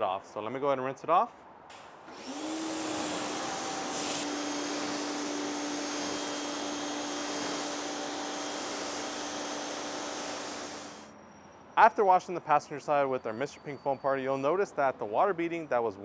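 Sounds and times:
water jet spraying: 1.7s - 11.0s
pressure washer motor humming: 1.7s - 11.1s.

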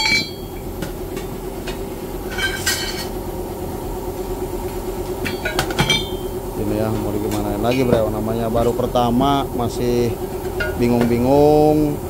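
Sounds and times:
ringing metal clangs: 0.0s - 0.7s, 5.2s - 6.3s
steady low hum: 0.0s - 12.0s.

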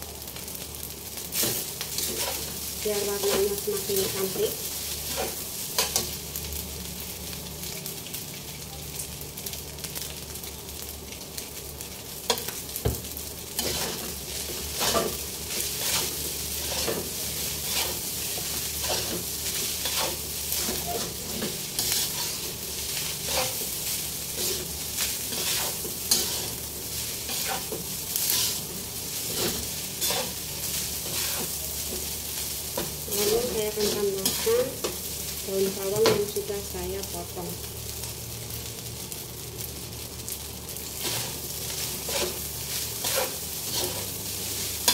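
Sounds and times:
rice sizzling in a wok: 0.0s - 44.9s
metal spatula scraping a wok: 1.4s - 2.6s, 13.6s - 26.6s, 27.2s - 32.0s, 32.8s - 35.0s, 41.0s - 44.2s.

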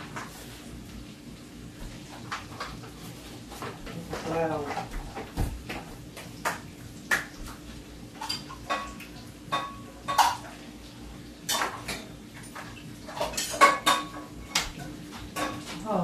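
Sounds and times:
dishes and utensils clinking: 8.2s - 10.6s, 11.4s - 16.0s.

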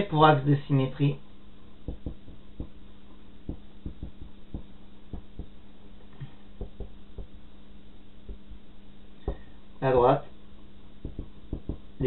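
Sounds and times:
low hum: 1.2s - 12.0s
marker writing on whiteboard: 11.0s - 11.9s.

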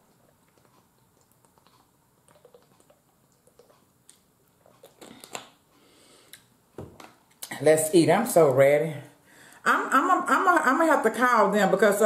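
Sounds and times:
swallowing gulps: 0.0s - 5.4s.

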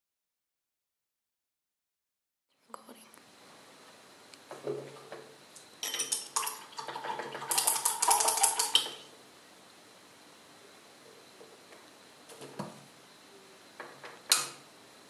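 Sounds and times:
tins and jars clinking: 5.8s - 6.6s.

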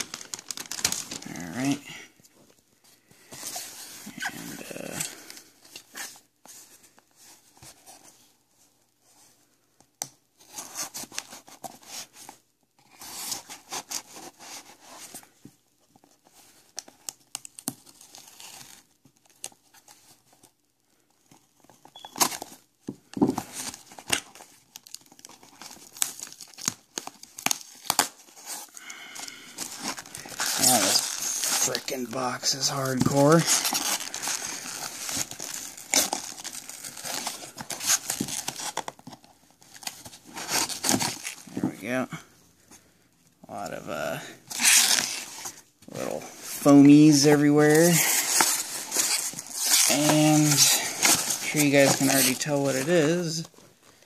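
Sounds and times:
cardboard and tape ripping: 0.0s - 1.8s, 29.4s - 41.6s, 44.5s - 53.4s
cardboard crinkling: 0.0s - 2.6s, 10.4s - 54.0s.

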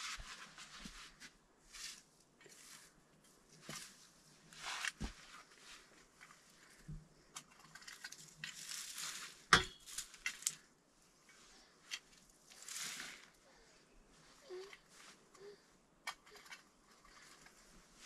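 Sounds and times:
hand tools scraping soil: 12.5s - 13.4s.

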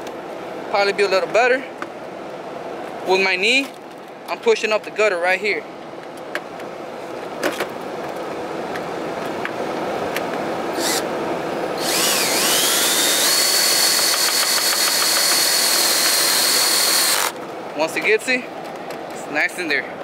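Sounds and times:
cordless drill motor whine: 10.8s - 11.1s, 11.7s - 17.4s.

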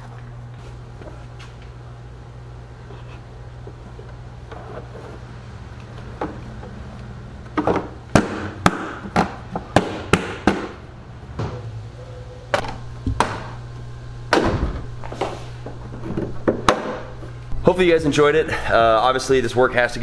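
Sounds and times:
car hood thump: 14.3s - 14.9s.

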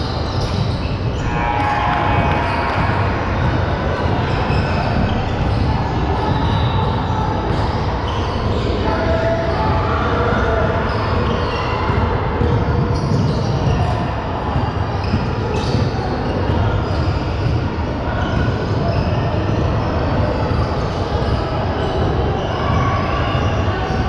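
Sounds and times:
basketball bouncing on court: 0.0s - 8.8s, 9.4s - 24.0s
shoe squeaks: 0.0s - 24.0s.

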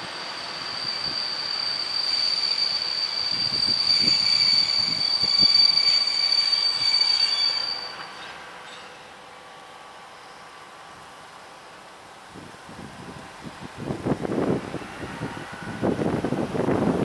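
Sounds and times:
train wheels squealing: 0.0s - 11.8s.

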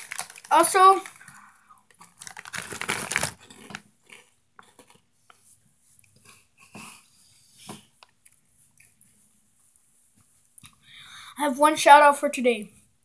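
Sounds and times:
crunchy snack being chewed: 0.0s - 5.1s.

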